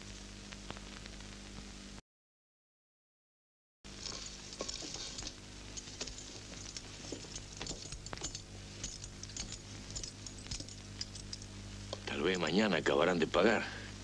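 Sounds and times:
mains hum: 0.0s - 2.0s, 3.9s - 14.0s
soundtrack hiss: 8.4s - 14.0s.

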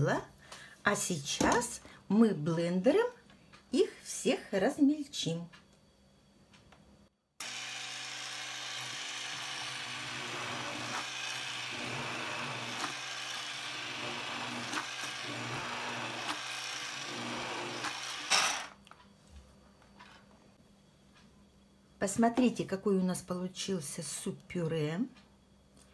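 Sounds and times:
immersion blender running: 7.4s - 18.8s.

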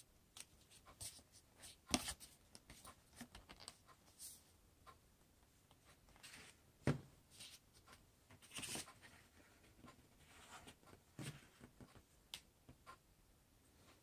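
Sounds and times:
paper rustling: 7.4s - 9.7s.

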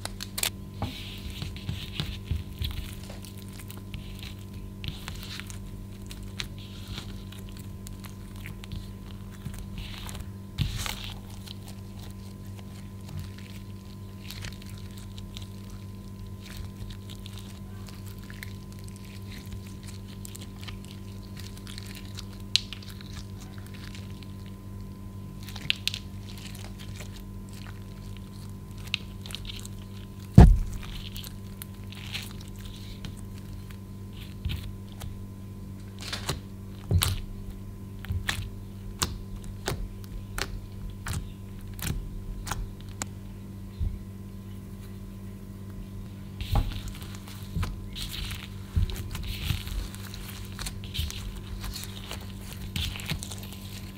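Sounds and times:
low electrical hum: 0.0s - 53.9s
heavy thump: 30.4s - 30.7s.

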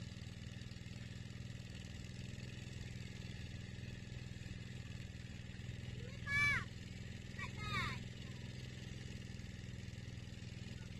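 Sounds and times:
small engine idling: 0.0s - 10.9s.

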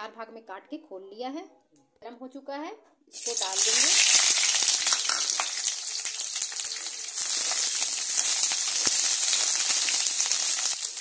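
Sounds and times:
onions sizzling in hot oil: 3.1s - 11.0s.

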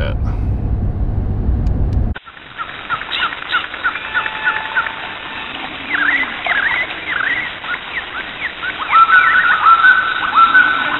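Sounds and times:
squeaky swooping calls: 2.6s - 10.9s
high animal chirps: 5.8s - 10.9s.

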